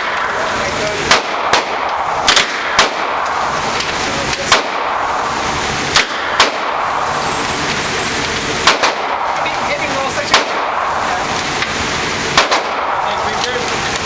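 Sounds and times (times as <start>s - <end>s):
steady background rush: 0.0s - 14.0s
gunshots in indoor range: 1.0s - 3.6s, 4.4s - 5.3s, 5.9s - 7.2s, 8.6s - 9.5s, 10.2s - 11.0s, 12.3s - 13.2s.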